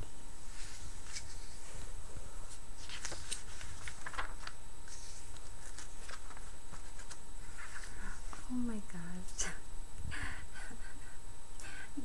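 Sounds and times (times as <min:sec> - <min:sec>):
steady low hum: 0:00.0 - 0:12.0
magazine page turning: 0:00.6 - 0:01.9, 0:02.5 - 0:08.4.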